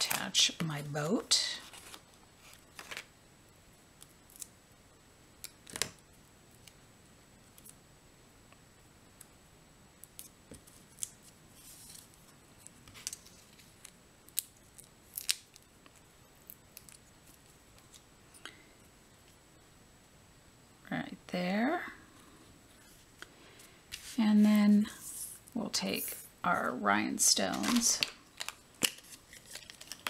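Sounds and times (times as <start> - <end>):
paper pieces being handled: 27.4 - 30.0.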